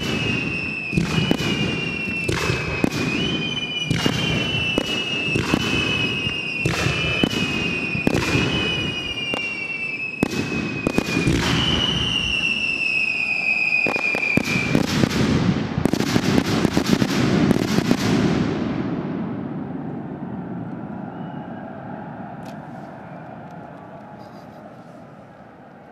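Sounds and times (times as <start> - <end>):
descending firework whistles: 0.0 - 18.6, 19.3 - 25.0
fireworks bursting with bangs: 0.0 - 19.8.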